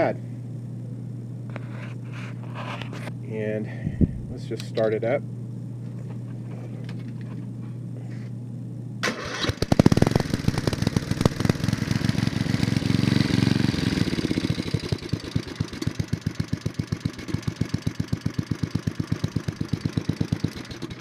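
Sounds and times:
small engine starting and idling: 0:09.0 - 0:21.0.

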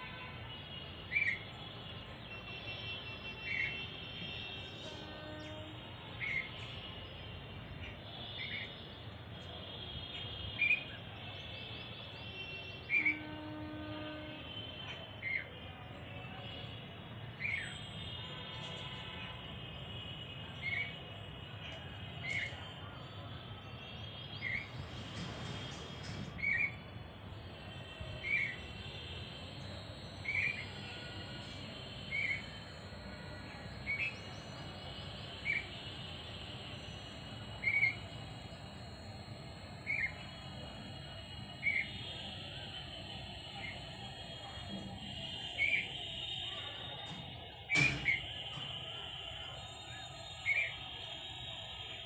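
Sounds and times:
low background hum: 0:24.6 - 0:47.4.

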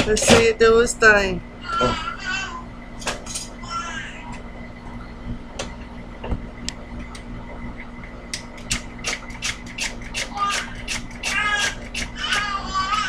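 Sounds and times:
child's voice: 0:01.6 - 0:02.7, 0:03.6 - 0:04.3, 0:10.3 - 0:13.0.

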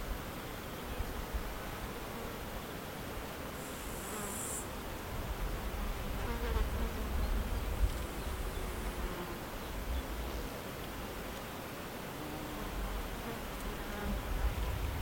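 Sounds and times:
insect buzzing past: 0:03.6 - 0:04.7, 0:06.0 - 0:10.5.

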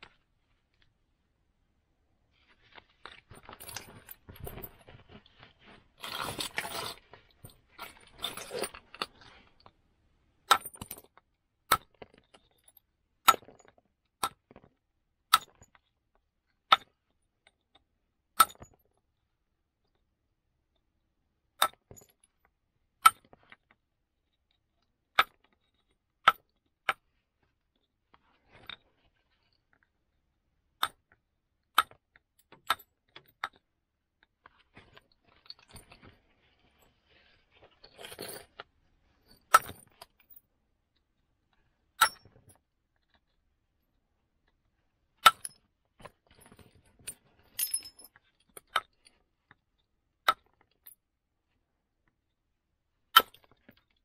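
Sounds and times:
scraping and rustling of tools: 0:02.3 - 0:09.7, 0:34.4 - 0:40.4, 0:45.4 - 0:49.1
stone knapping strikes clinking: 0:42.0 - 0:42.3.

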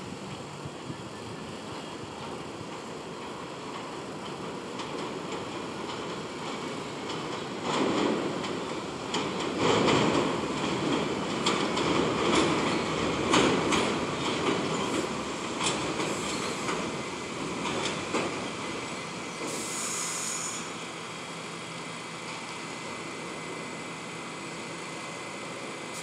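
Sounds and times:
train wheels clicking over rail joints: 0:00.1 - 0:26.0
air hiss: 0:16.0 - 0:16.8, 0:19.2 - 0:20.9
train wheels squealing: 0:16.0 - 0:16.8, 0:18.9 - 0:20.8.

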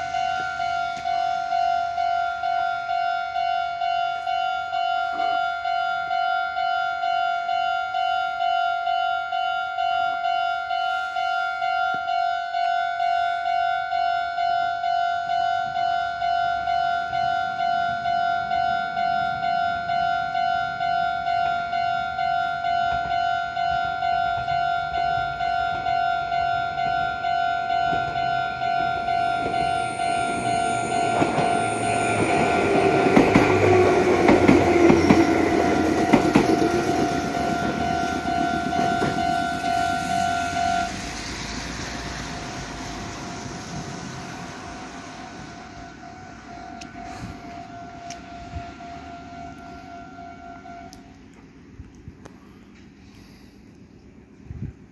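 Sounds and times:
level crossing warning bell: 0:00.0 - 0:51.8
train wheels clattering over rails: 0:27.9 - 0:45.0.

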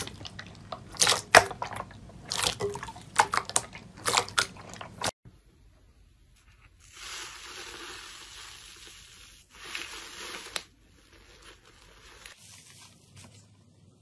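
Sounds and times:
slime crackling and fizzing: 0:00.0 - 0:05.2, 0:06.8 - 0:12.5.

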